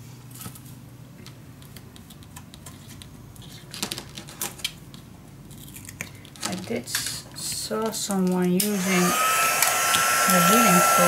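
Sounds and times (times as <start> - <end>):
tool scratching paper: 9.9 - 11.0.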